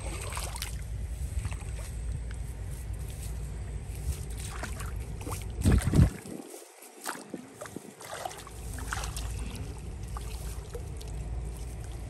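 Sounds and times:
steady low rumble: 0:00.0 - 0:12.0
faint ticks and rustles: 0:01.1 - 0:05.6.

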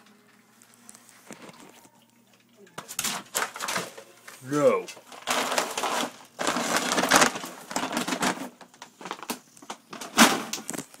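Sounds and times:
dog crunching dry kibble: 0:02.8 - 0:11.0.

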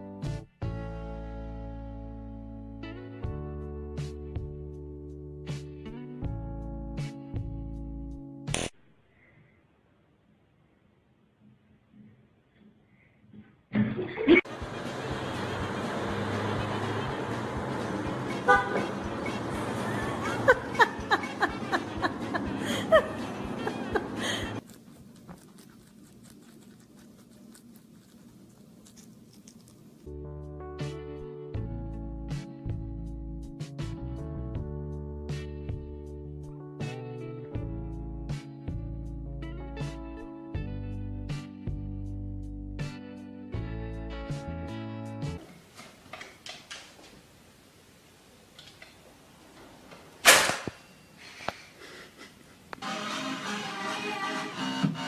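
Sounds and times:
rabbits chewing greens: 0:23.2 - 0:30.1.

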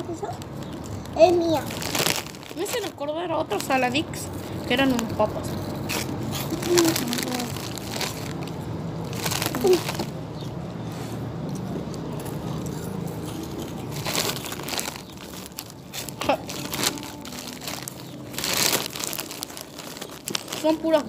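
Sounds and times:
crunching snacks: 0:00.3 - 0:02.9, 0:05.0 - 0:10.4, 0:11.5 - 0:21.0
plastic snack bag crinkling: 0:00.5 - 0:03.9, 0:04.9 - 0:10.1, 0:13.4 - 0:21.0.

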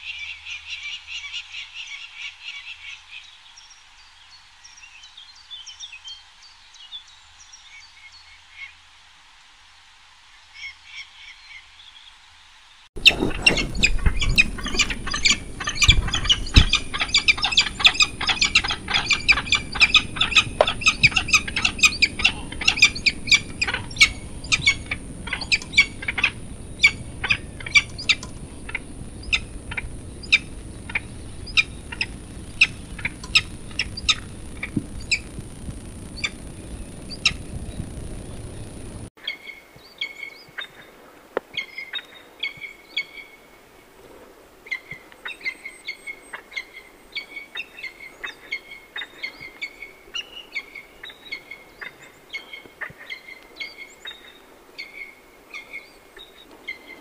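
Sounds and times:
falcon calling: 0:13.0 - 0:39.0.

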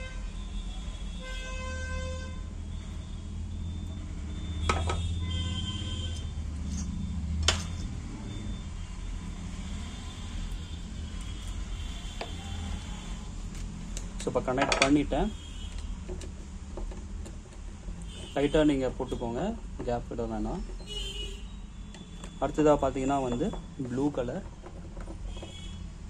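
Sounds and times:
vehicle horns: 0:00.0 - 0:03.5, 0:04.4 - 0:06.9, 0:08.8 - 0:13.3, 0:15.0 - 0:16.1, 0:18.0 - 0:19.6, 0:20.8 - 0:24.1, 0:25.2 - 0:26.0
road traffic rumble: 0:00.0 - 0:26.0.

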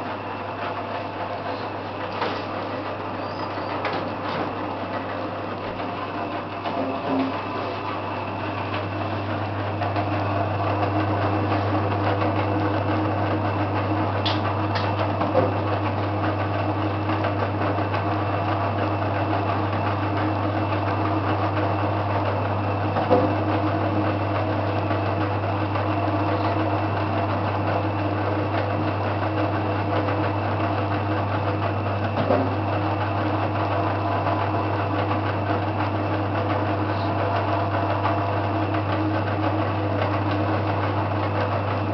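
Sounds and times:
machine motor humming: 0:00.0 - 0:41.9.

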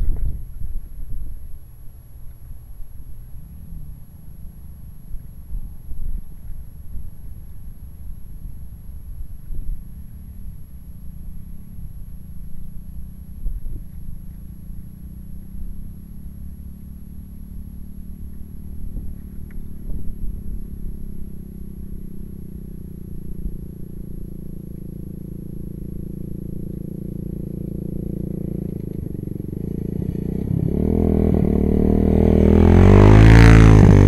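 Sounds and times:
wind buffeting microphone: 0:00.0 - 0:01.7.

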